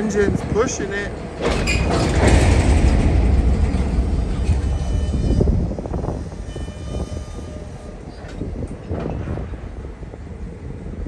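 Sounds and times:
locomotive engine rumble: 0.0s - 11.0s
faint high squeals: 4.6s - 5.5s, 6.4s - 8.2s.

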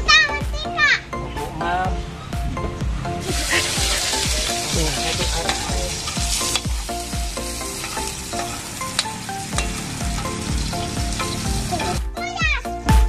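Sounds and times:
ladle stirring: 3.2s - 11.7s
oil sizzling in a wok: 3.2s - 12.0s.

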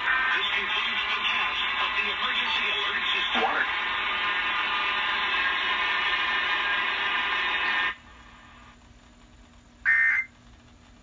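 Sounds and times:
noisy radio signal: 0.0s - 8.5s.

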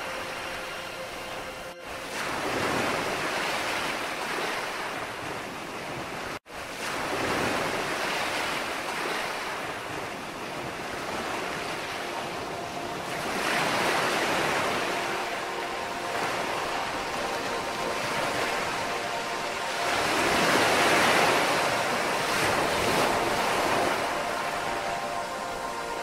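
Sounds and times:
ocean surf washing onto beach: 0.0s - 26.0s.

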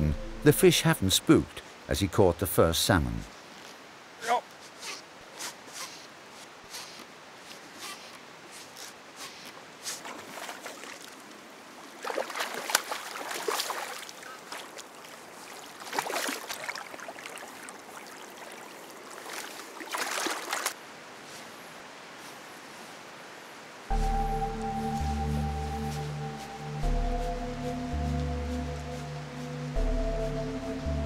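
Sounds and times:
fish splashing in river water: 12.0s - 20.8s
lapping water: 12.0s - 20.8s.

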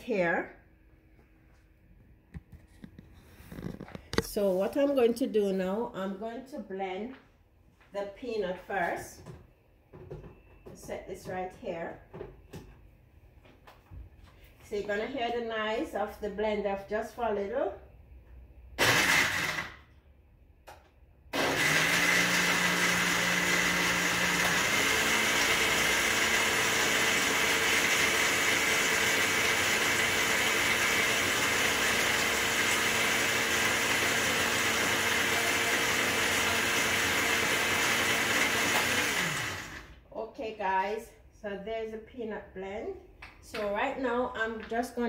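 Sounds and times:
blender grinding: 18.8s - 19.8s, 21.4s - 40.0s.

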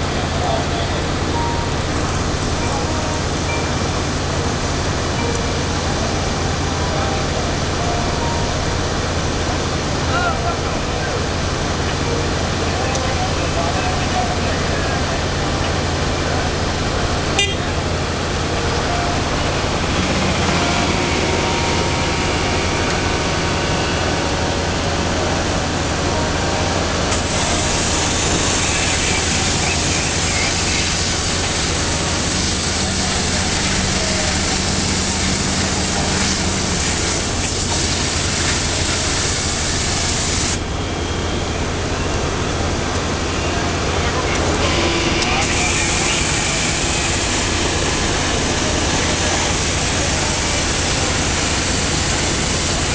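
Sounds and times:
heavy machinery humming: 0.0s - 52.9s
fluid jet spraying and hissing: 27.1s - 40.6s, 45.4s - 52.9s.

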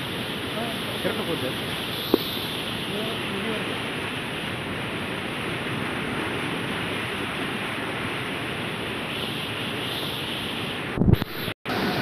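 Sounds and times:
fast-flowing floodwater rushing: 0.0s - 8.6s.

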